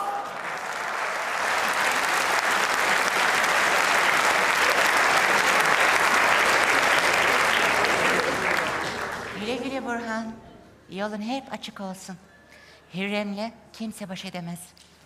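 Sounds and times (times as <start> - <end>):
audience applauding: 0.0 - 9.9.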